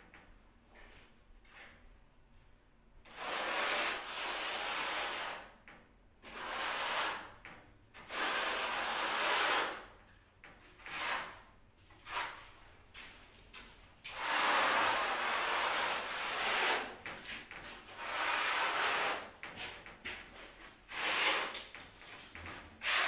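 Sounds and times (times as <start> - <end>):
trowel scraping adhesive on wall: 3.1 - 5.6, 6.2 - 10.0, 10.7 - 12.5, 14.1 - 19.8, 20.4 - 23.0.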